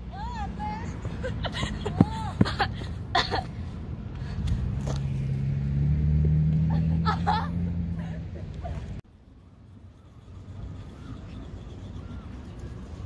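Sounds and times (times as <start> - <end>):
car engine humming: 1.0 - 9.4.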